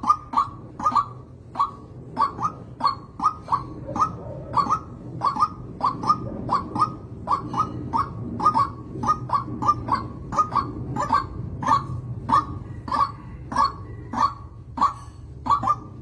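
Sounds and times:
waterhen croaking calls: 0.0s - 16.0s.

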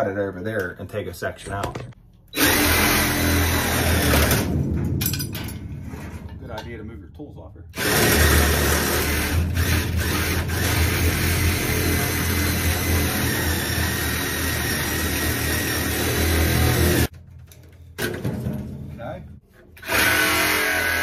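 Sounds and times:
reciprocating saw cutting pipe: 2.3s - 4.4s, 7.8s - 17.1s, 19.8s - 21.0s.

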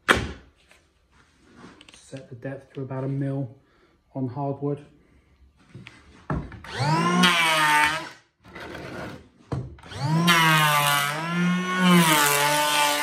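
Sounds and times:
electric planer whining: 6.7s - 8.2s, 9.8s - 13.0s
planer cutting hardwood: 6.7s - 9.2s, 9.8s - 13.0s.

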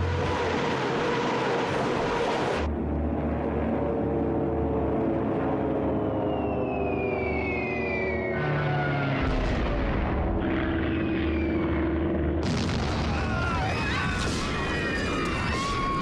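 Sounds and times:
aircraft engine drone: 0.0s - 16.0s
bomb blasts booming: 9.2s - 10.6s, 12.3s - 14.7s.

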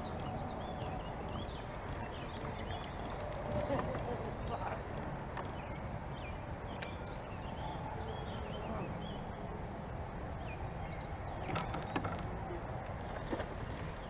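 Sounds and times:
birds chirping and whistling: 0.0s - 4.8s, 5.4s - 9.5s, 10.1s - 12.2s.

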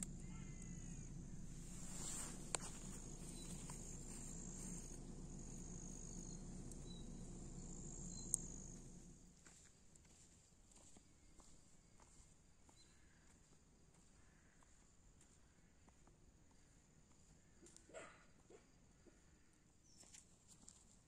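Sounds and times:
faint bird chirps: 0.0s - 9.1s, 12.6s - 14.8s
crickets chirping: 0.0s - 9.3s
low steady hum: 0.0s - 9.4s
sharp clicks: 1.6s - 9.1s.

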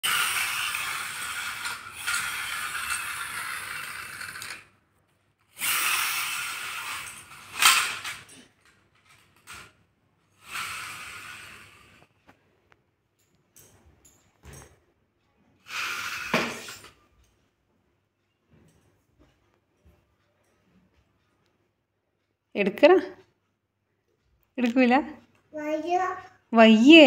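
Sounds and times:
toy gears whirring: 0.0s - 4.8s, 5.4s - 12.2s, 15.6s - 17.3s.

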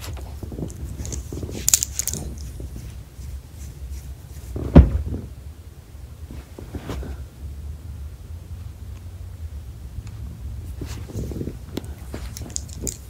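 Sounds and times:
dog collar tags jingling: 0.6s - 2.6s, 12.0s - 13.0s
dull thump: 4.5s - 5.4s.

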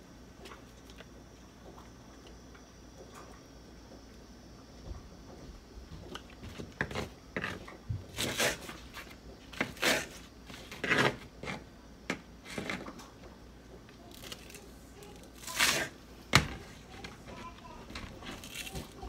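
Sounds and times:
knife slicing green onions: 8.2s - 8.7s, 9.6s - 11.6s, 15.4s - 16.0s.

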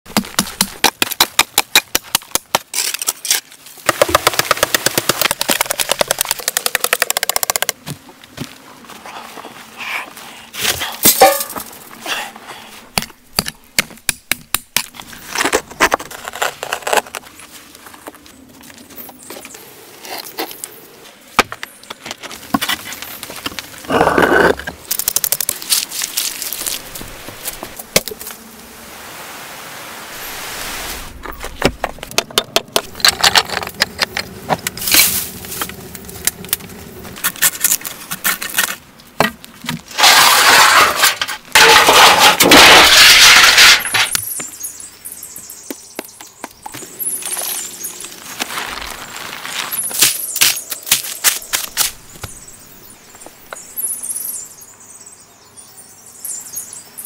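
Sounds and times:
soil and stones scraped: 1.9s - 6.7s, 14.8s - 28.4s, 30.2s - 44.9s, 46.6s - 52.5s.

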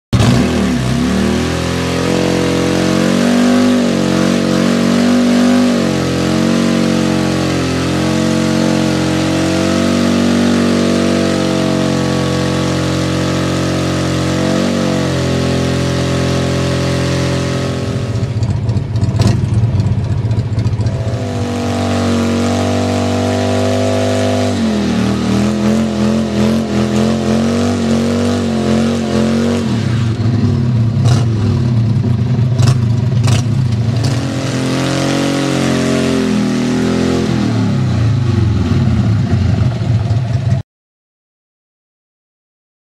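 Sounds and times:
motorcycle engine revving: 0.2s - 40.6s.

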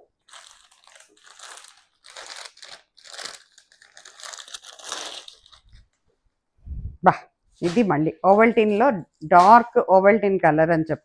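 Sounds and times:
plastic packet crinkling: 0.1s - 6.0s.

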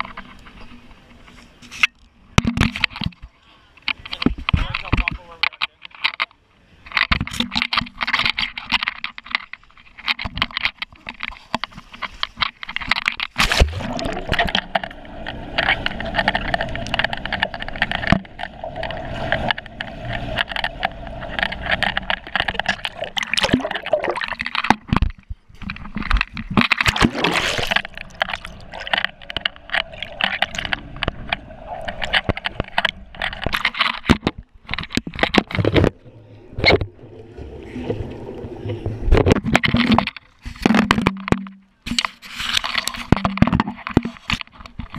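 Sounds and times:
clicks and knocks on camera housing: 1.8s - 6.3s
muffled water sloshing and bubbling: 6.7s - 44.9s.

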